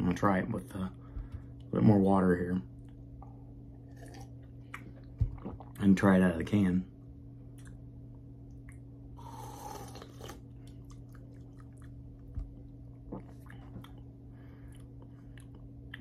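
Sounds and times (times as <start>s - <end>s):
low hum: 0.0s - 16.0s
person slurping a drink: 9.2s - 10.4s
small clicks and mouth sounds: 14.7s - 16.0s.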